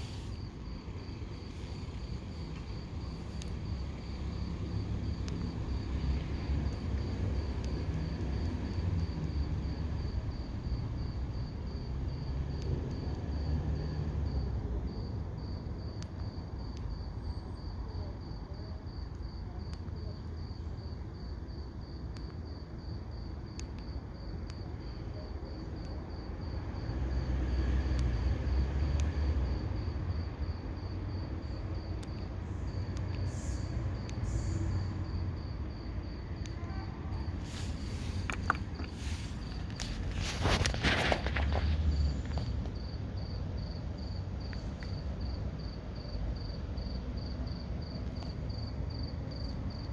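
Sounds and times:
low background rumble: 0.0 - 12.4
cricket chirping: 0.0 - 49.9.

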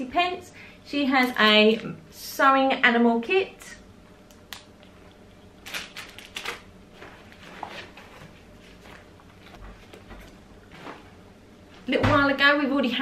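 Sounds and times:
plastic packaging crinkling: 1.2 - 2.0, 5.6 - 6.7.

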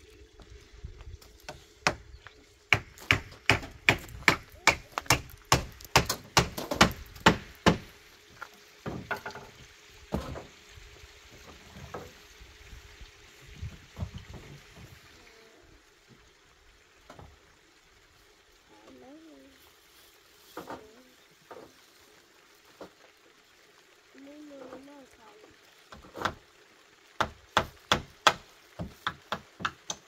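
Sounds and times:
hard sharp blows on wood: 2.7 - 7.9.

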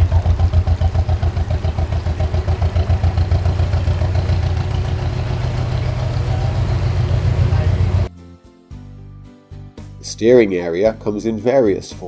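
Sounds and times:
boat diesel engine running: 0.0 - 8.1.

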